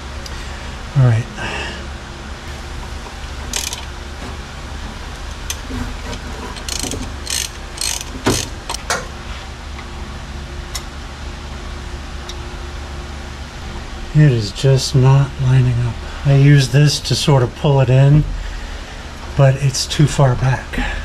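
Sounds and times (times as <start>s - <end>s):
steady low hum: 0.0s - 21.0s
ratchet wrench clicking: 3.5s - 3.9s, 6.5s - 9.0s.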